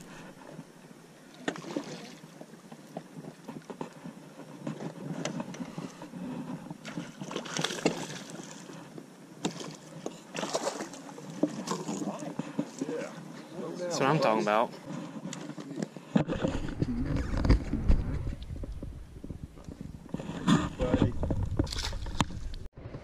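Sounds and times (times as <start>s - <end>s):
water splashing: 1.3s - 3.0s, 6.8s - 13.2s.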